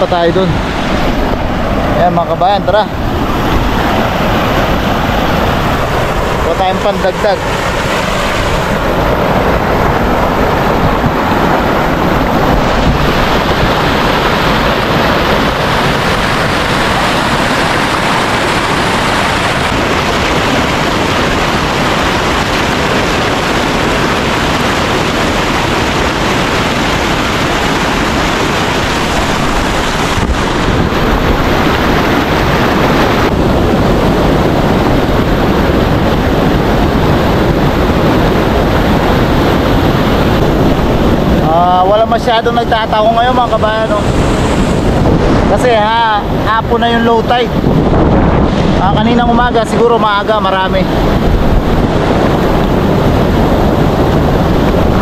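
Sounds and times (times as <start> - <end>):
sea surf along shore: 0.0 - 55.0
wind buffeting microphone: 0.0 - 55.0.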